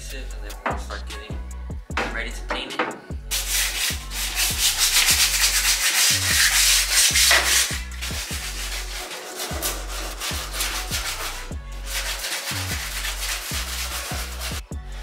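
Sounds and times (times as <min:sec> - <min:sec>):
background music with bass beat: 0:00.0 - 0:15.0
sandpaper rasping on metal: 0:03.3 - 0:14.7.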